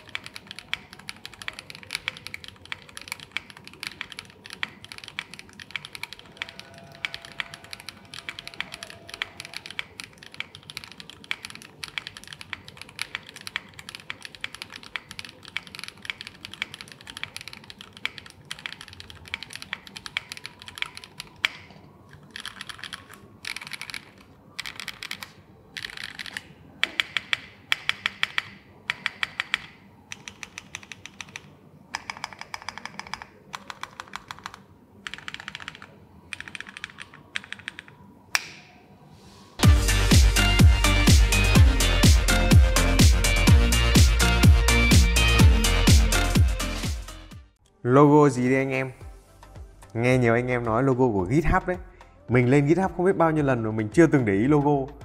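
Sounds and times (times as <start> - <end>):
mechanical keyboard typing: 0.0 - 38.0.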